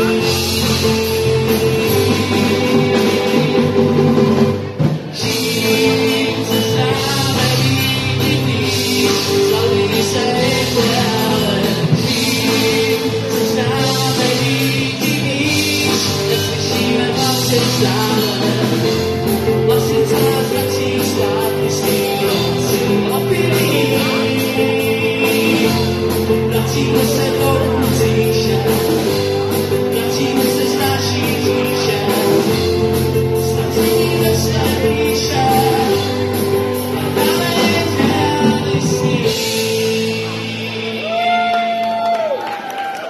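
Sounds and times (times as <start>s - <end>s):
person singing: 0.0s - 42.4s
live rock band playing: 0.0s - 43.0s.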